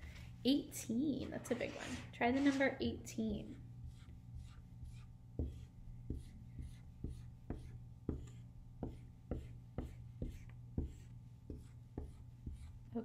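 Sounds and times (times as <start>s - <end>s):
marker tapping and squeaking on whiteboard: 3.9s - 12.8s.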